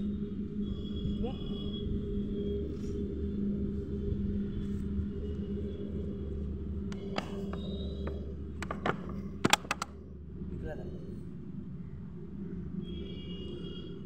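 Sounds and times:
low rumble with hum: 0.0 - 14.0
plastic bottle clicks: 8.6 - 9.9.

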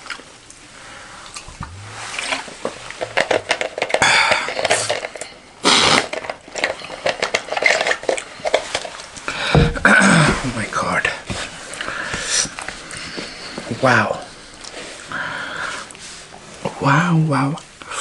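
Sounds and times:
plastic bottle crackling: 1.4 - 10.7.

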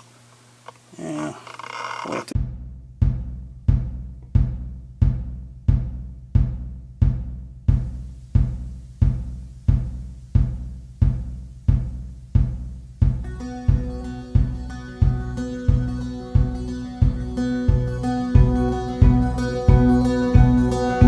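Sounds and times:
heavy low drum hits: 2.4 - 20.7
sustained bass: 2.4 - 21.0
keyboard chords: 13.2 - 21.0.

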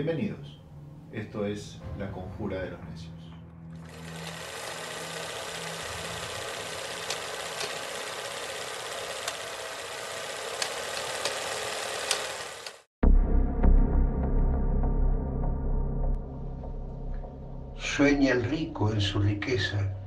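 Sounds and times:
film projector whirring: 3.7 - 12.9
projector clicks and pops: 6.8 - 9.6, 10.4 - 12.9.

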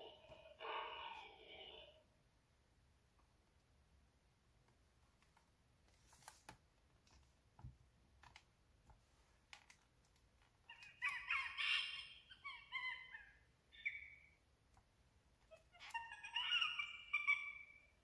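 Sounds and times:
book pages turning: 5.2 - 7.4
recorded monkeys squeaking: 10.7 - 14.4, 15.5 - 18.0
recorded birds twittering: 10.8 - 14.4.

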